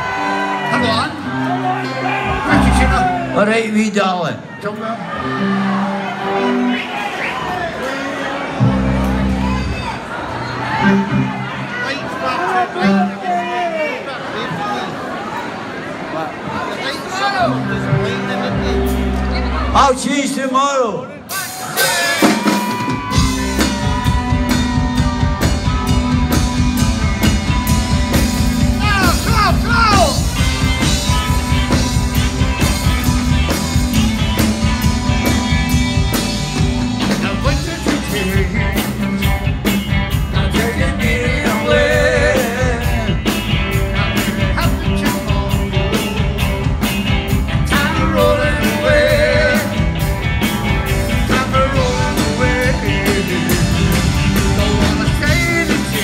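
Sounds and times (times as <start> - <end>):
bass guitar: 0.0 - 3.7, 8.5 - 11.8, 17.5 - 20.0, 21.3 - 56.0
drum kit beat: 21.3 - 56.0
electric guitars: 21.4 - 56.0.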